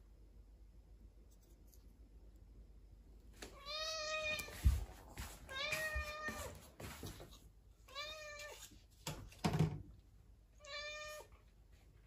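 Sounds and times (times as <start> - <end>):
cat meowing: 3.6 - 4.6, 5.5 - 6.5, 7.9 - 8.6, 10.6 - 11.4.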